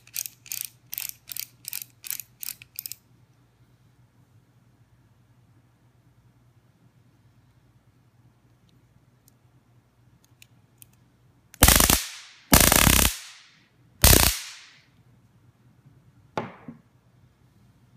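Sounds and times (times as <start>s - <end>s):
stun gun electric crackling: 11.6s - 13.4s, 14.0s - 14.7s.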